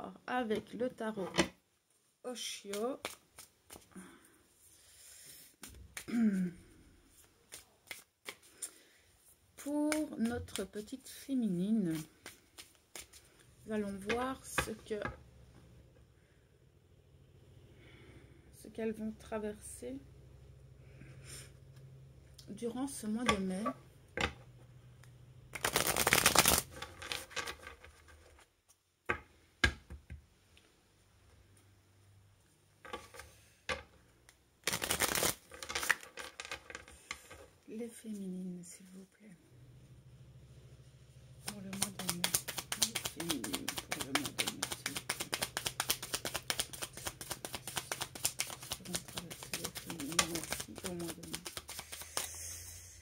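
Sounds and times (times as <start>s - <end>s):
cards shuffling: 2.6s - 3.9s, 7.2s - 8.8s, 11.8s - 14.7s, 25.5s - 28.4s, 34.6s - 36.9s, 41.4s - 52.4s
sharp card taps: 41.5s - 52.3s.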